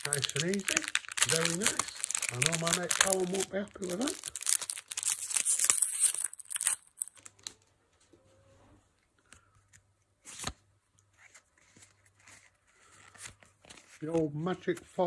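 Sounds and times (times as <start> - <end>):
foil wrapper tearing: 0.0 - 7.3
cards rustling: 0.0 - 7.6, 9.3 - 15.0.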